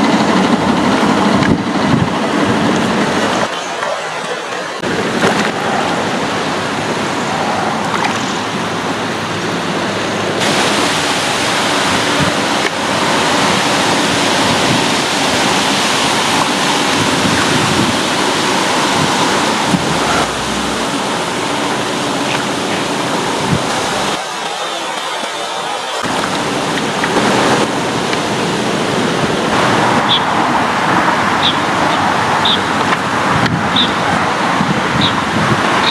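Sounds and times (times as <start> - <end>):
rushing water hiss: 4.8 - 35.9.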